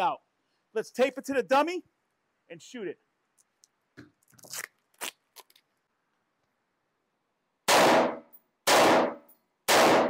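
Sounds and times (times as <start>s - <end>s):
rifle shots ringing indoors: 7.7s - 10.0s.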